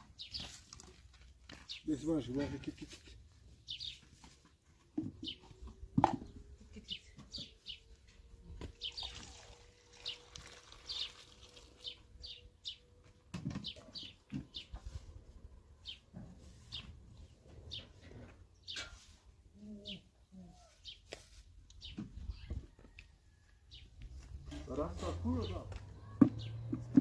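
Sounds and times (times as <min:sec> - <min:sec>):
small birds chirping: 0:00.1 - 0:15.1, 0:15.8 - 0:27.0
water pouring from plastic can: 0:08.8 - 0:12.0.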